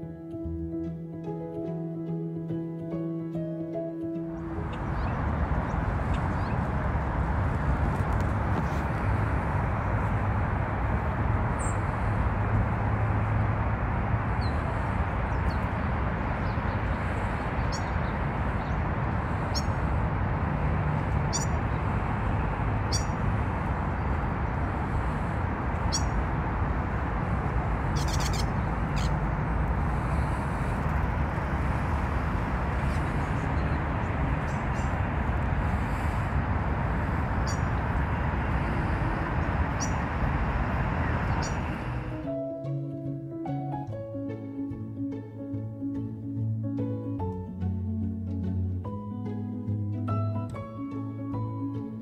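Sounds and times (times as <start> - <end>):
low outdoor rumble: 3.8 - 52.0
small birds chirping: 14.4 - 19.8, 21.2 - 21.8, 22.8 - 23.3, 25.8 - 26.2, 27.8 - 29.2, 37.4 - 37.9, 39.7 - 40.1, 41.2 - 41.8.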